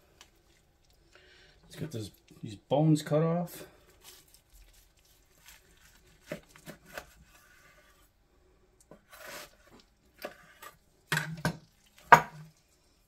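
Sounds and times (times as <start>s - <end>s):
knife slicing meat: 4.0s - 8.0s
knife scraping along bone: 4.0s - 8.1s, 9.0s - 10.8s.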